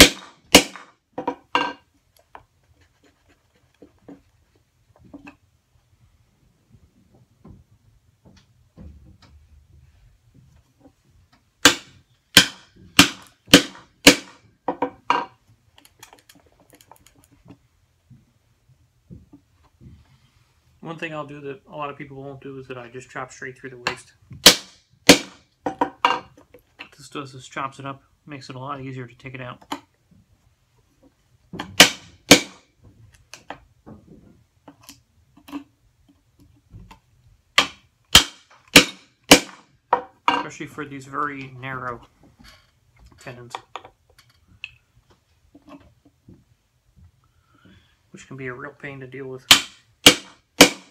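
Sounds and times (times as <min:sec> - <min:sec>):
hammer striking chisel into wood: 0:00.0 - 0:01.4, 0:11.7 - 0:14.4, 0:24.4 - 0:25.4, 0:31.8 - 0:32.6, 0:37.6 - 0:39.6, 0:49.5 - 0:50.9
hammer striking chisel handle: 0:49.5 - 0:50.9.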